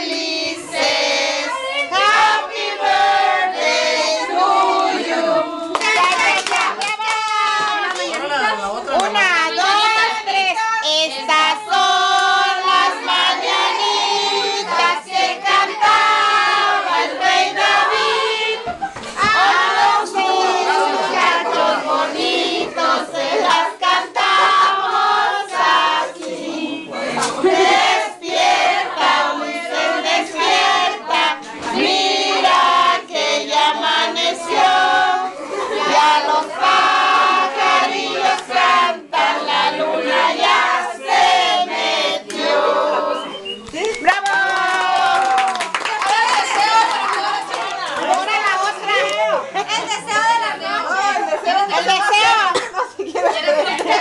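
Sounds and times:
group singing in chorus: 0:00.0 - 0:06.8, 0:11.0 - 0:43.6
hand clapping: 0:05.7 - 0:08.3, 0:43.6 - 0:48.3.

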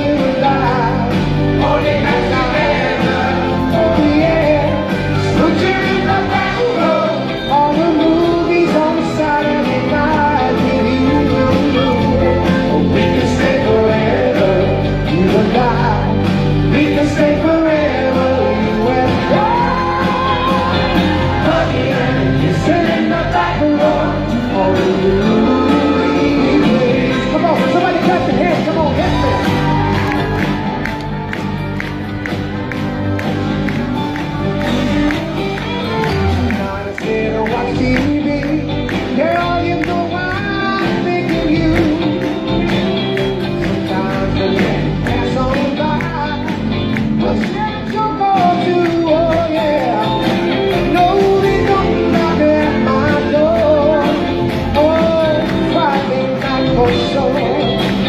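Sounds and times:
vocal group singing: 0:00.0 - 0:31.3, 0:47.2 - 0:58.0
backing band playing: 0:00.0 - 0:58.0.

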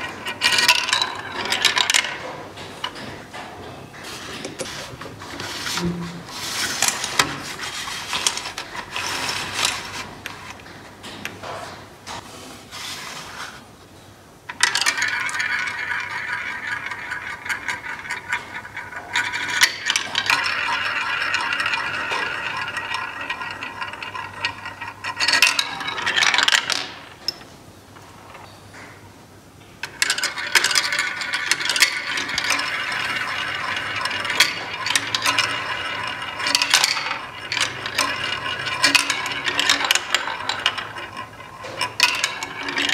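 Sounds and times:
small balls rolling and clattering: 0:00.0 - 0:11.8, 0:14.5 - 0:28.8, 0:29.8 - 0:42.9.

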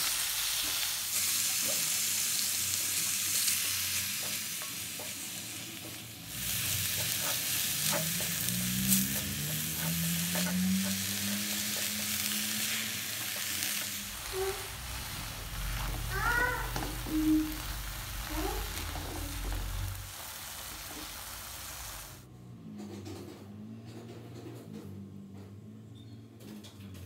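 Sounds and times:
vegetables sizzling in a wok: 0:00.0 - 0:22.3
spatula tossing against pan: 0:05.9 - 0:17.1.

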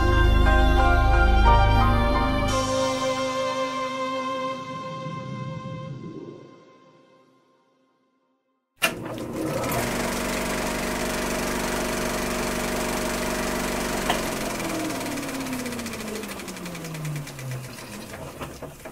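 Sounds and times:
small motor machine clattering: 0:08.8 - 0:18.9.

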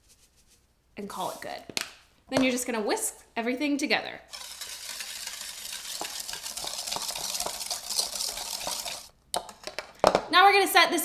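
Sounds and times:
whisk scraping a bowl: 0:04.3 - 0:09.1.

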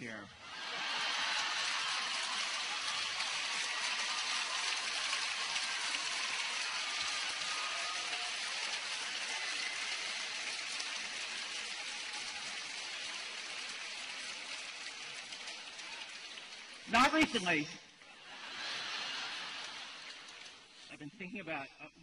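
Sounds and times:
crowd laughing: 0:00.4 - 0:08.3, 0:17.0 - 0:21.5
crowd applauding: 0:00.4 - 0:21.6.

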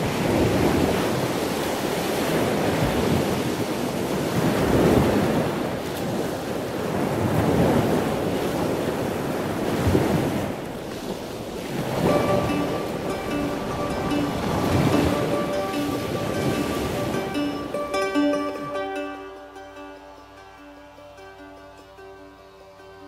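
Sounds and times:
wind buffeting microphone: 0:00.0 - 0:17.8
sea waves washing: 0:00.0 - 0:19.9.

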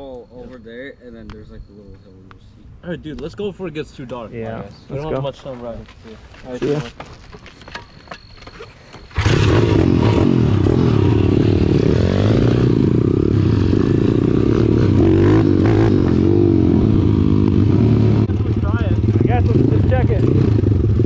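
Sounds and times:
pit bike engines revving: 0:09.1 - 0:21.0.

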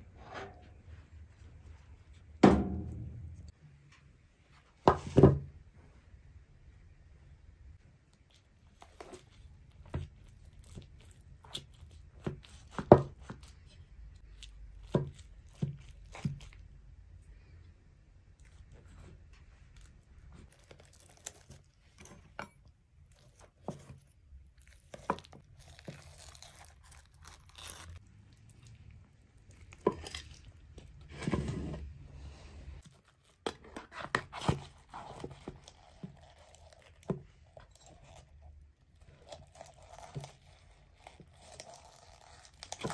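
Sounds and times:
crunching of crisp cheese crust: 0:08.1 - 0:16.8, 0:19.7 - 0:22.0, 0:23.0 - 0:31.1, 0:32.8 - 0:42.9.

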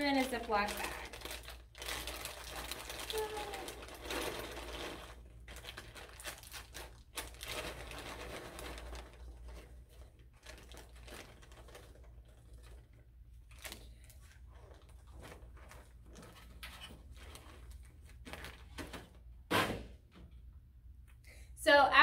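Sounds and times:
plastic bag crinkling: 0:00.0 - 0:18.9.

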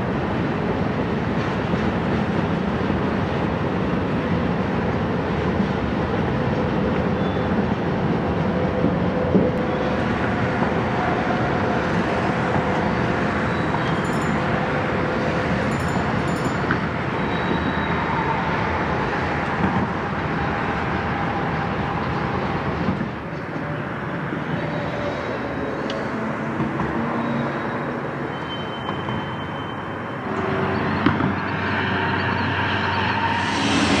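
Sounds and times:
train wheels rumbling on rails: 0:00.0 - 0:34.0
faint high wheel squeals: 0:07.1 - 0:07.6, 0:12.8 - 0:18.8, 0:27.0 - 0:34.0.

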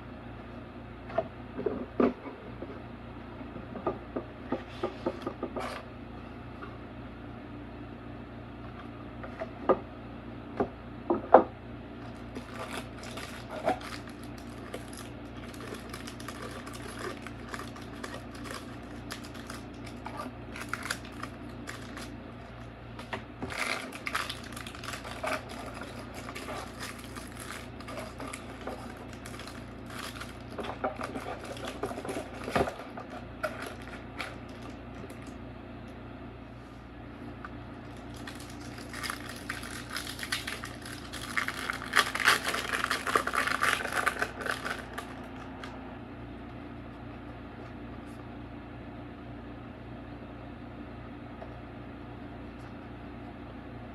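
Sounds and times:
steady low hum: 0:00.0 - 0:53.9
foil wrapper crinkling: 0:12.1 - 0:22.7, 0:23.4 - 0:35.3, 0:37.8 - 0:45.7.

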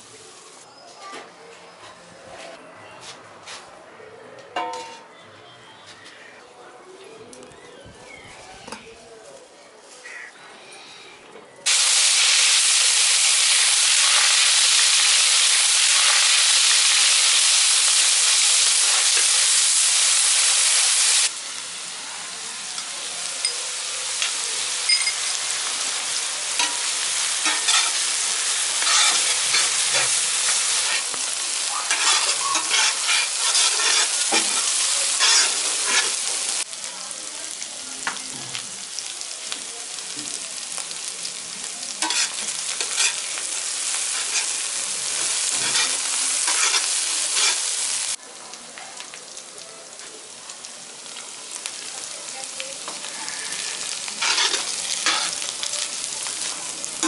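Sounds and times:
onions sizzling in oil: 0:00.0 - 0:00.6, 0:11.6 - 0:57.0
spatula scraping pan: 0:28.8 - 0:31.1, 0:31.9 - 0:36.2, 0:42.0 - 0:43.3, 0:45.5 - 0:47.6, 0:53.2 - 0:55.4.

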